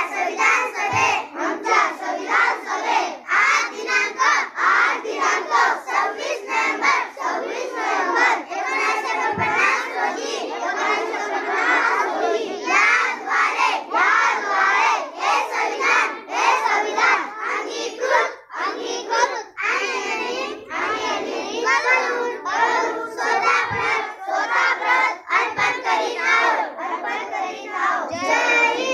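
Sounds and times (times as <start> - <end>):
children reciting in unison: 0.0 - 28.9.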